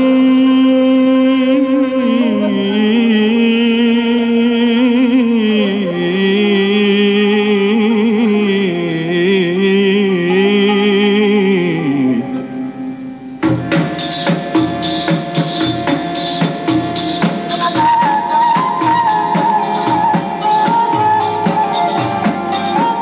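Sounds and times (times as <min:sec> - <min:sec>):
man singing long wavering note: 0:00.0 - 0:12.9
drum beats: 0:13.4 - 0:23.0.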